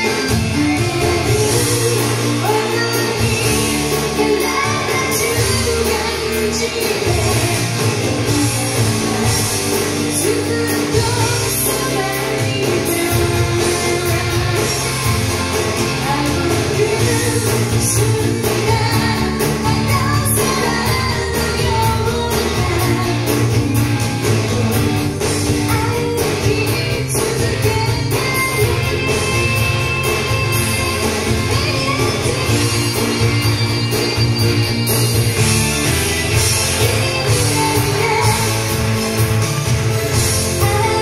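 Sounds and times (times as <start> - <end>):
woman singing: 0.0 - 38.9, 40.2 - 41.0
rock band playing: 0.0 - 41.0.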